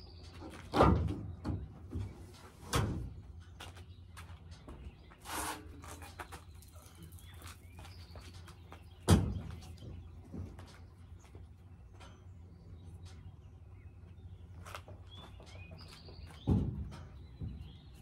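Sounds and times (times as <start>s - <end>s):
faint birdsong: 0.0s - 18.0s
heavy tire thudding on tailgate: 0.7s - 3.2s, 9.0s - 10.5s, 16.3s - 17.9s
tire scuffing: 2.2s - 12.1s, 14.1s - 16.5s.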